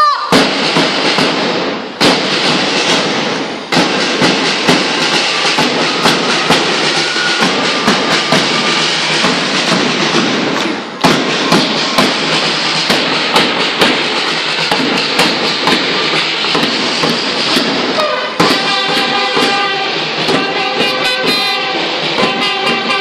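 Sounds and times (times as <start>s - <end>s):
marching band drum beat: 0.3s - 23.0s
snare drums rattling: 0.3s - 23.0s.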